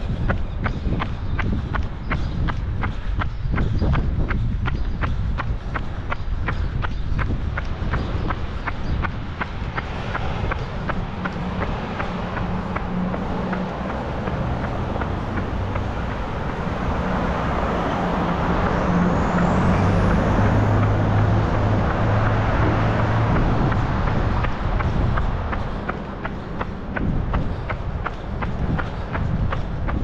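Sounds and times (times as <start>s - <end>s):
running footsteps: 0.0s - 30.0s
vehicle passing close by: 9.1s - 29.3s.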